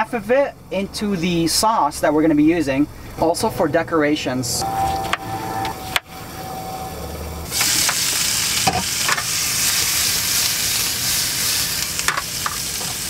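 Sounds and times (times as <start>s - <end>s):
asparagus sizzling in a pan: 7.5s - 13.0s.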